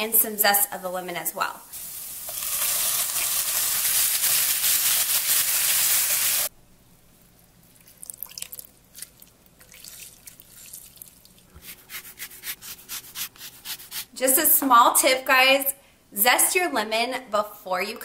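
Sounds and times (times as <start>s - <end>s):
onions sizzling in a frying pan: 1.6s - 6.5s.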